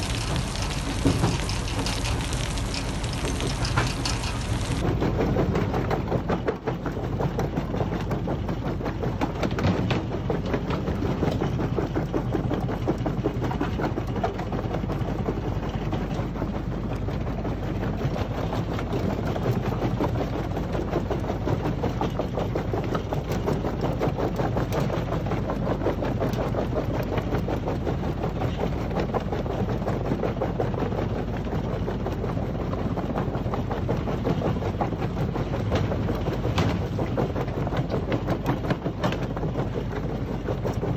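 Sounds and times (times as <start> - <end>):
crusher machine hum: 0.0 - 4.8.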